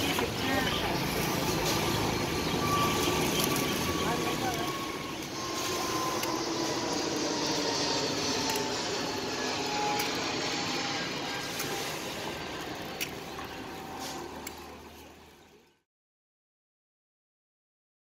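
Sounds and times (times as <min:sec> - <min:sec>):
indistinct voices: 0:00.0 - 0:06.4
traffic din: 0:00.0 - 0:15.6.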